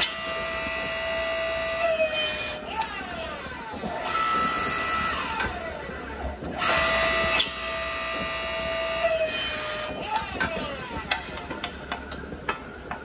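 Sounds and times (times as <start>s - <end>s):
hydraulic press motor whine: 0.0s - 13.0s.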